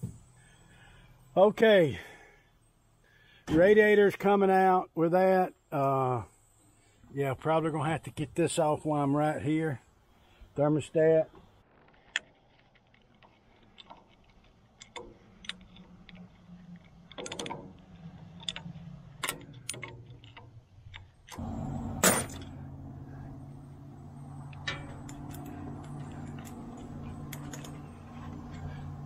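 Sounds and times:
motor humming: 21.4 - 29.0
wrench clinking on bolts: 24.4 - 28.8.

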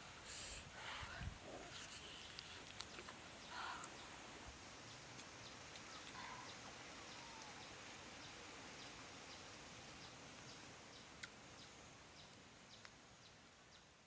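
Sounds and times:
low steady hiss: 0.0 - 14.0
faint falling bird call: 5.9 - 7.8.

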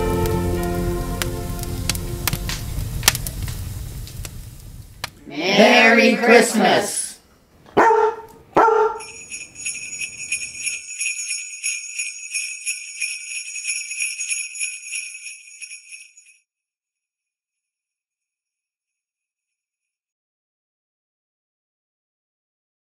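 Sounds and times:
dog barking: 7.7 - 9.2
jingle bells shaking: 8.9 - 16.4.

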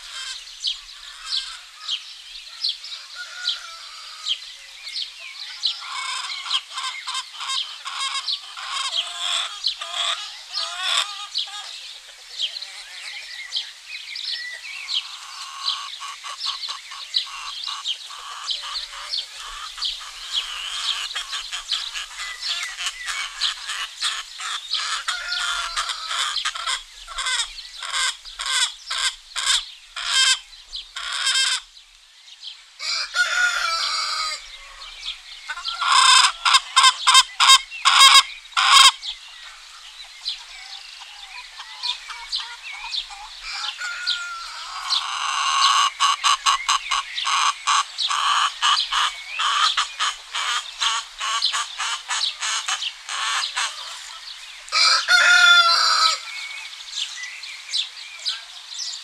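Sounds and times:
chickens clucking: 0.0 - 31.8, 32.8 - 59.0
small birds chirping: 0.0 - 59.0
rooster crowing: 2.8 - 4.4, 25.0 - 26.7, 32.8 - 35.1, 43.4 - 45.4, 54.7 - 56.4.

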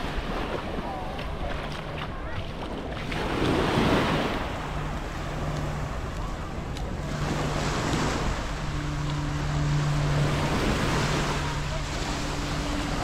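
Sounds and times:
low steady hum: 0.0 - 13.0
small waves washing onto beach: 0.0 - 13.0.

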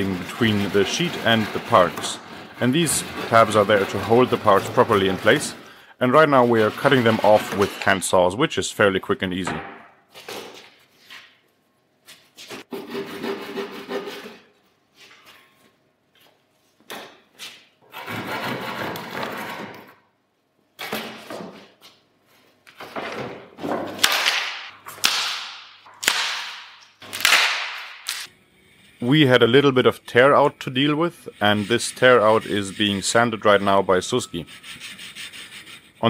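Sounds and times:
hand sanding wood: 0.0 - 7.9, 30.2 - 36.0.

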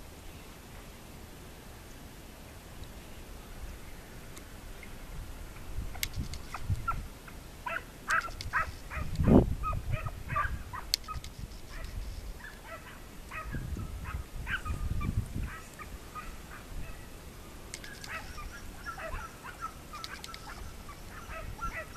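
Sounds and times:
wind buffeting microphone: 3.6 - 7.2, 8.1 - 17.2, 17.8 - 21.9
hounds baying: 7.6 - 17.0, 17.8 - 21.9.

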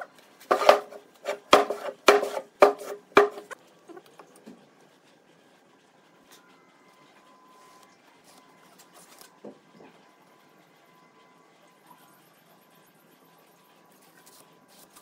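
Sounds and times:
wooden block knocking on workbench: 0.5 - 3.6.

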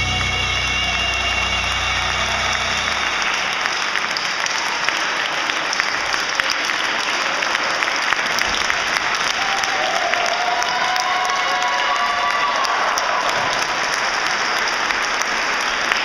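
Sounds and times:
music: 0.0 - 3.8
crowd applause: 0.0 - 16.0.

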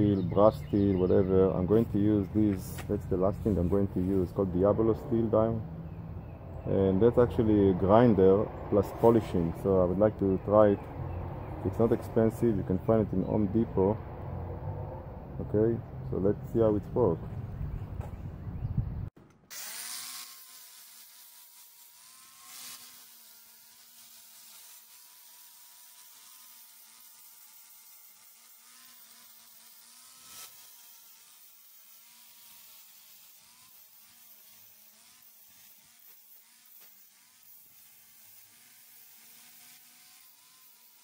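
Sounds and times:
angle grinder grinding metal: 0.0 - 14.8, 19.3 - 41.0.

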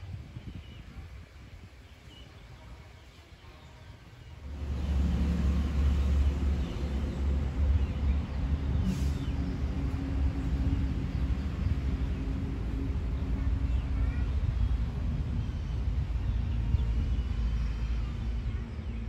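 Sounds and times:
engine rumbling: 4.0 - 19.0.

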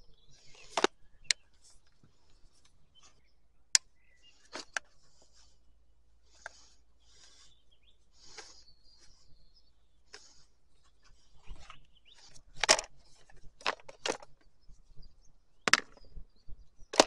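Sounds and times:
plastic clicks and taps: 15.7 - 16.0.

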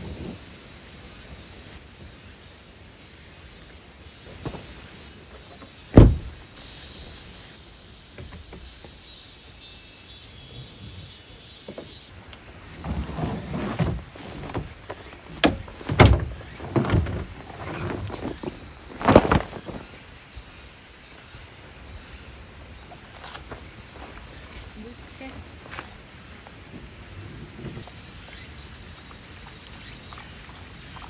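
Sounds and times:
faint insect hiss: 0.0 - 31.0
vehicle door shutting: 5.9 - 6.4, 13.2 - 18.5
knocks and clatters of gear: 12.8 - 19.8.

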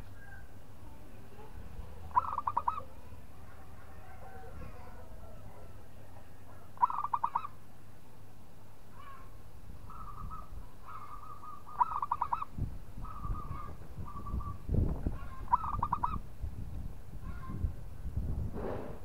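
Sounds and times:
dove cooing: 2.0 - 3.0, 6.8 - 7.6, 9.9 - 14.6, 15.2 - 16.2.

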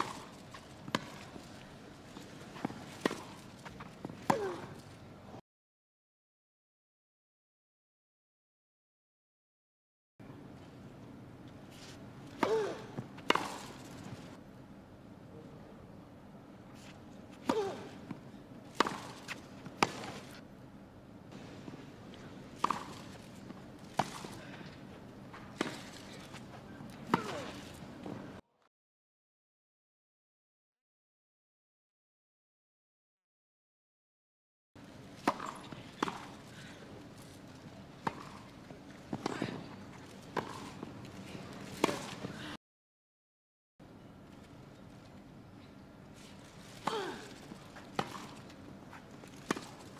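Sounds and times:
racquet hitting tennis ball: 0.0 - 1.4, 2.2 - 4.8, 12.4 - 14.2, 17.4 - 20.4, 22.6 - 24.6, 27.1 - 28.2, 35.2 - 36.7, 40.2 - 42.4, 46.8 - 49.9
tennis ball bouncing on grass: 0.0 - 1.4, 12.4 - 14.1, 18.1 - 20.3, 22.6 - 24.4, 35.2 - 36.5, 38.0 - 38.5, 40.3 - 41.0.

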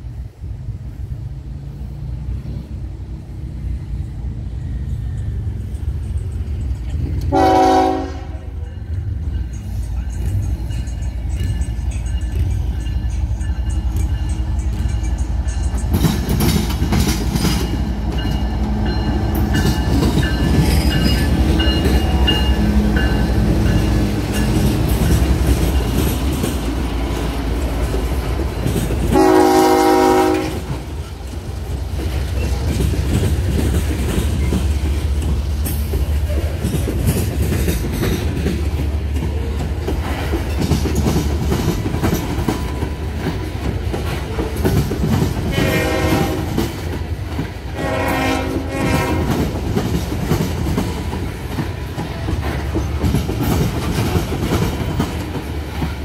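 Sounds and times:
diesel locomotive passing: 0.0 - 56.0
train cars clacking over rails: 1.7 - 56.0
horn blast: 7.3 - 8.5, 29.1 - 30.7, 47.8 - 49.4.

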